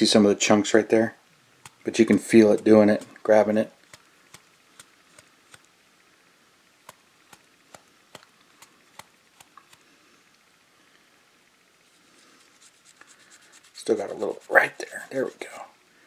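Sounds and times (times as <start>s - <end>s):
cotton swab rubbing plastic: 1.6s - 3.2s, 3.8s - 5.6s, 11.9s - 15.6s.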